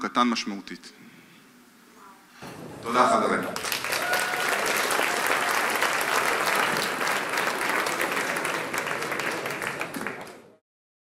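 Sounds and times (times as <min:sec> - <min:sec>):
audience applauding: 0:02.4 - 0:10.6.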